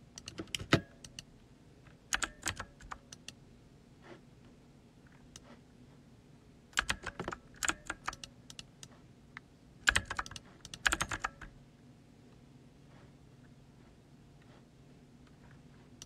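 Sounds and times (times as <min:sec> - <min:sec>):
keyboard typing clicks: 0:00.2 - 0:01.3, 0:02.1 - 0:03.4, 0:06.8 - 0:08.9, 0:09.8 - 0:11.5.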